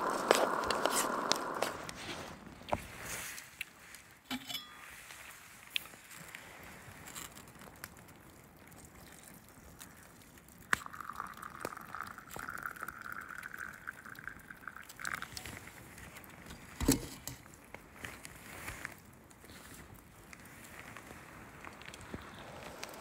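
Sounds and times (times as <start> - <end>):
hot water pouring into metal mug: 0.0 - 1.9, 10.0 - 16.8.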